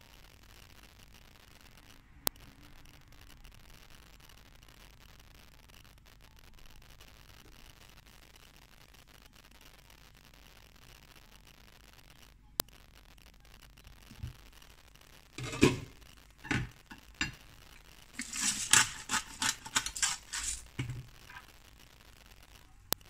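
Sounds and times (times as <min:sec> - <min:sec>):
glass pan lid clinking and rattling: 0:15.4 - 0:17.4, 0:18.2 - 0:20.6.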